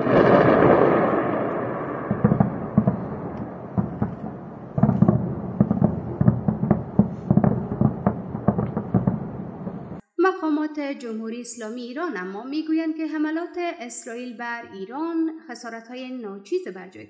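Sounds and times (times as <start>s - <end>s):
large boom: 0.0s - 10.0s
gunfire cracks and pops: 2.3s - 9.2s
continuous rumble: 2.3s - 10.0s.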